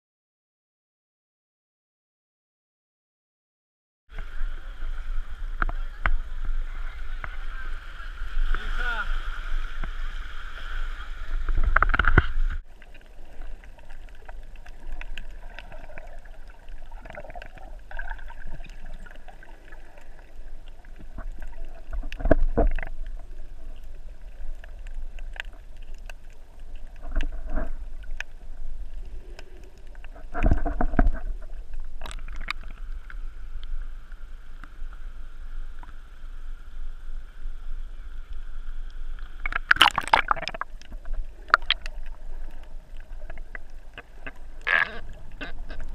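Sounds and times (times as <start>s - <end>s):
faint steady hum: 4.1s - 45.9s
muffled underwater sounds: 4.1s - 45.9s
splashy bursts: 39.4s - 40.8s.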